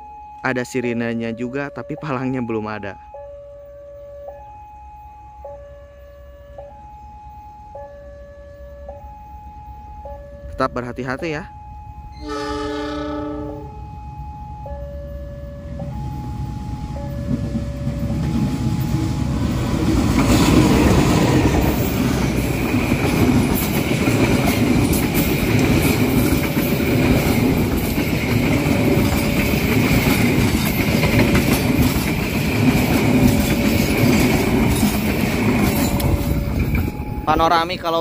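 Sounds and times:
two-tone level crossing siren: 0.0 - 34.3, 35.6 - 38.0
wheel-on-rail whine: 11.6 - 38.0
diesel locomotive rumble: 11.8 - 38.0
train wheel clicks over rail joints: 21.8 - 37.1.

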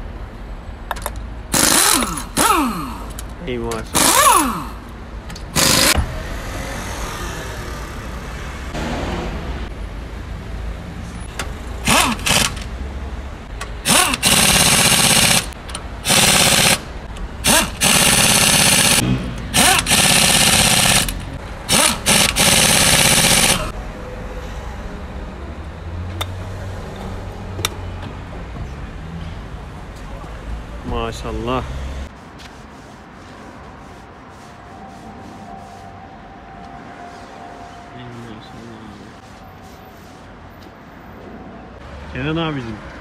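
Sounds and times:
pneumatic impact wrench hammering: 1.5 - 3.2, 3.9 - 6.2, 11.4 - 12.7, 13.6 - 23.7.

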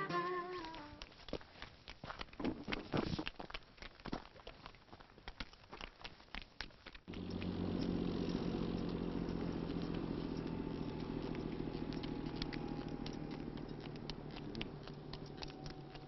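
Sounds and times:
vehicle engine running: 7.1 - 16.0.

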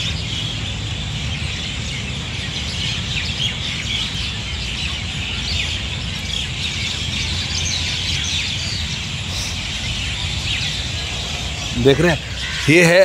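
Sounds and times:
flock of birds chirping: 0.0 - 13.0
low rumble: 9.8 - 12.7.

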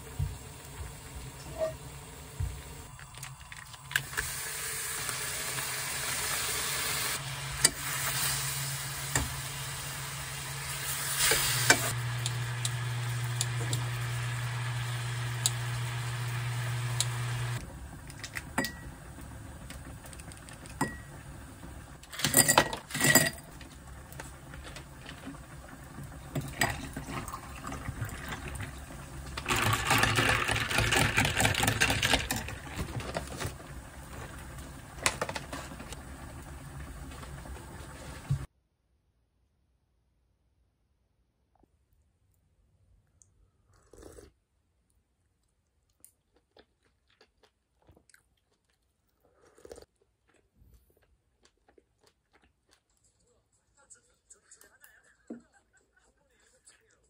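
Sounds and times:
food sizzling in frying pan: 4.0 - 17.6
glass and ice clinking: 20.8 - 21.2.

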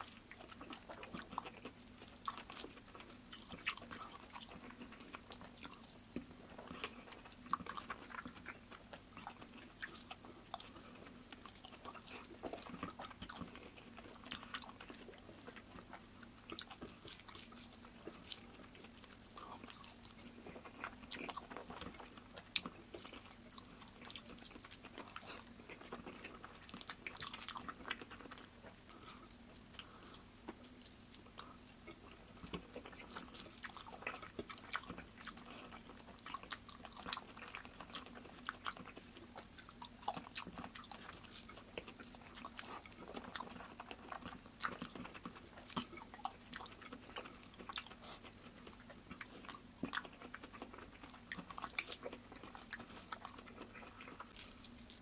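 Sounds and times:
chewing with mouth clicks: 0.0 - 55.0
faint steady hum: 0.0 - 55.0.

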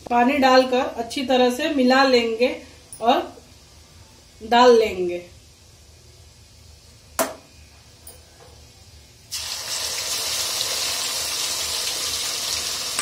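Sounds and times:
sharp knock: 7.2 - 7.5
paste sizzling in hot oil: 9.3 - 13.0.

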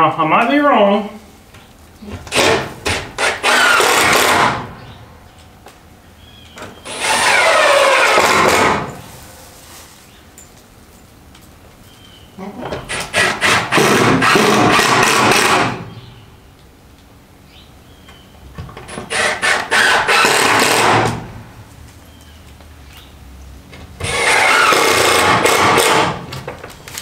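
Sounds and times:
power tool working on wood: 2.3 - 4.8, 6.8 - 9.0, 12.9 - 15.9, 18.9 - 21.4, 24.0 - 26.3.

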